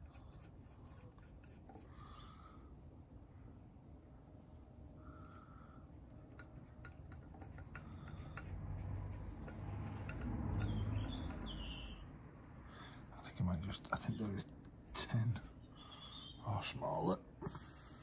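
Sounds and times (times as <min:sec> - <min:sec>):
birds chirping: 0:09.7 - 0:12.1, 0:15.1 - 0:17.2.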